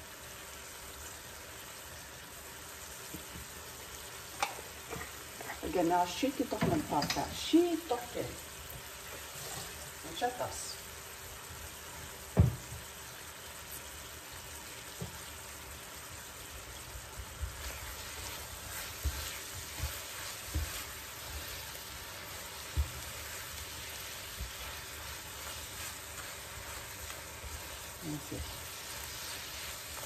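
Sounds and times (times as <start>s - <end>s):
apple slices sizzling in a pan: 0.0s - 30.0s
utensil scraping a pan: 9.0s - 9.8s.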